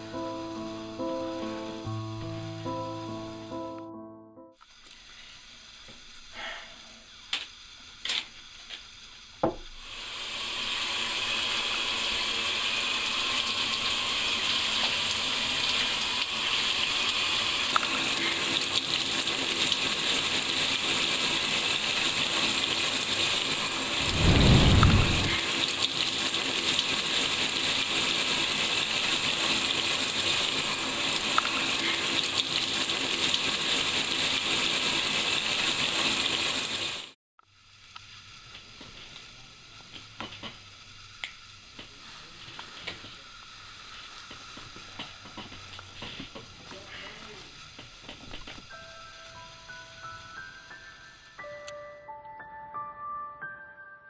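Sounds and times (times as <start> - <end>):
shower spraying water: 0.0 - 3.6, 4.6 - 51.4
low rumble: 24.0 - 25.5.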